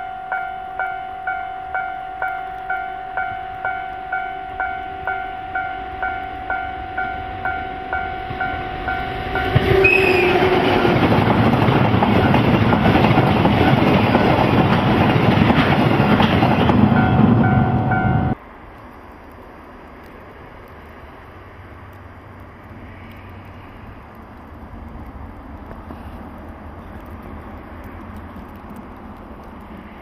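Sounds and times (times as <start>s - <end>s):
level-crossing bell dinging: 0.0s - 9.6s, 16.9s - 18.4s
freight train passing: 0.0s - 30.0s.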